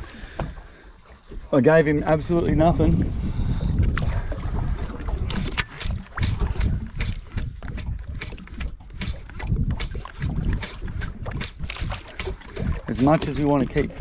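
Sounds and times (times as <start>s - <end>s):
water sloshing against boat hull: 0.0s - 14.0s
wind buffeting microphone: 1.6s - 14.0s.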